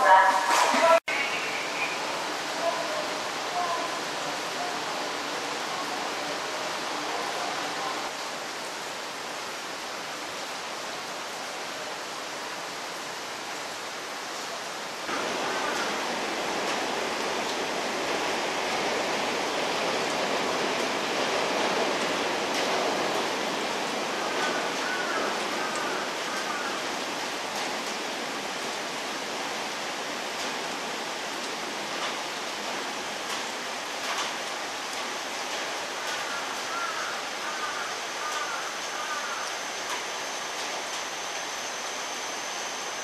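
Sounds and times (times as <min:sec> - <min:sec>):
heavy rain hissing: 0:00.0 - 0:43.0
train approaching: 0:15.1 - 0:28.7, 0:37.2 - 0:43.0.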